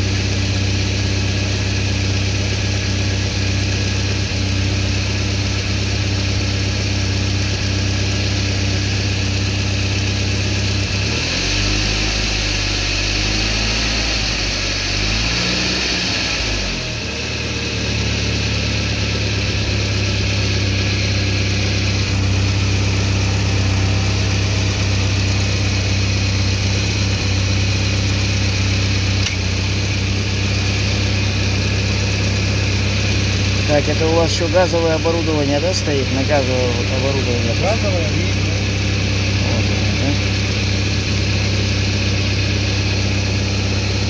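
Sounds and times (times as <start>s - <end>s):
car engine revving and idling: 0.0s - 44.0s.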